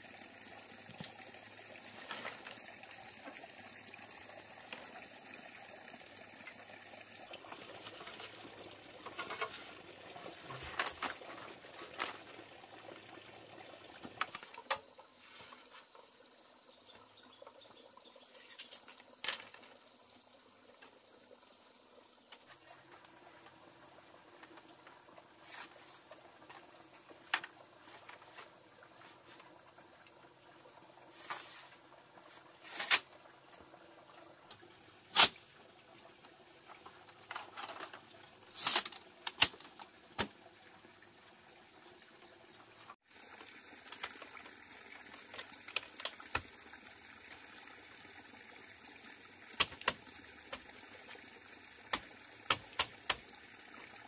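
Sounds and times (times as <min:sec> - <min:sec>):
faint hiss: 0:00.0 - 0:41.3.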